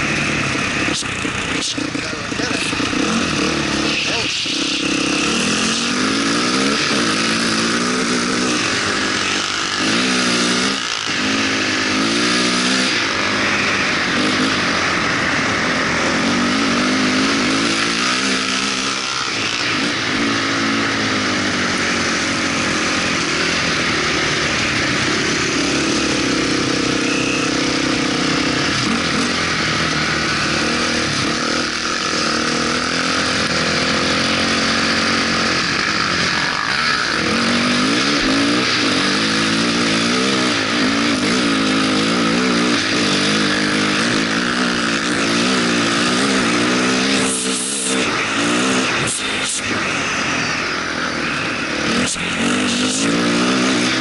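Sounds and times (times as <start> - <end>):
off-road vehicle engine revving: 0.0 - 54.0.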